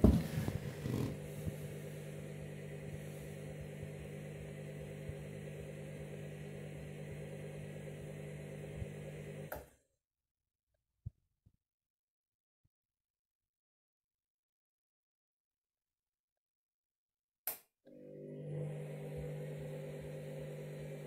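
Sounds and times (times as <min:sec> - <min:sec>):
washing machine motor hum: 0:00.0 - 0:09.7, 0:17.9 - 0:21.0.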